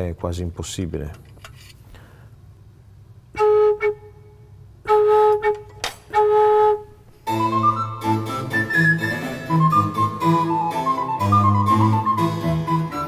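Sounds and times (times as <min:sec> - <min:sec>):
organ pipe note: 0:04.9 - 0:13.0.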